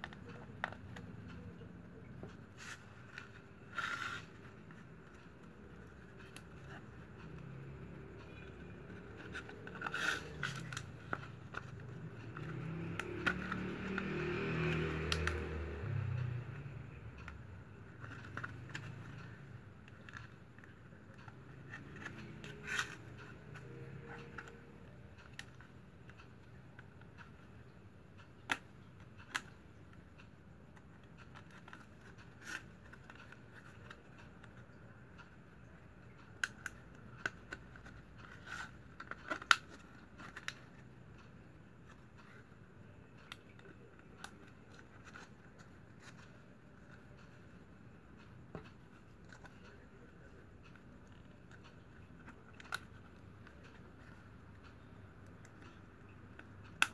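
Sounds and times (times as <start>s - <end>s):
plastic strap crackling and clicking: 8.4s - 15.6s, 36.1s - 41.3s
sharp plastic clicks: 18.0s - 42.5s, 48.2s - 56.9s.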